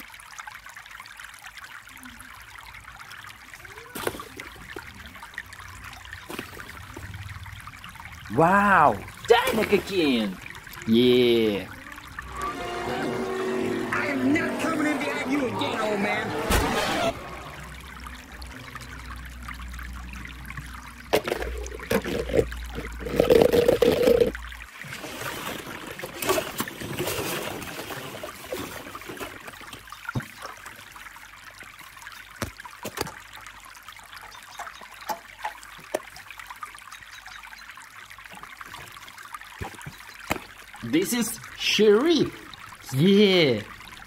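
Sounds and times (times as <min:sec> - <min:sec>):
plastic balls rustling and clacking: 0:21.1 - 0:24.5.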